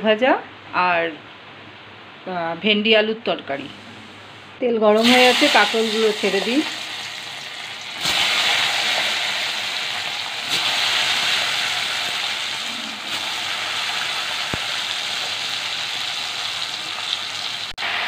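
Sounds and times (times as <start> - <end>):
vegetable slices sizzling in oil: 5.0 - 18.0.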